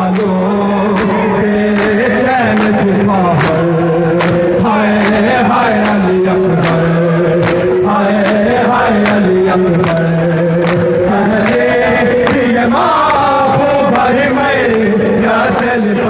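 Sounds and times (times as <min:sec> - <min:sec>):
men chanting together: 0:00.0 - 0:16.0
hands slapping chests: 0:01.0 - 0:01.2, 0:01.8 - 0:02.0, 0:02.6 - 0:02.8, 0:03.4 - 0:03.6, 0:04.2 - 0:05.2, 0:05.8 - 0:06.0, 0:06.6 - 0:06.8, 0:07.4 - 0:09.2, 0:09.8 - 0:10.0, 0:10.6 - 0:13.2.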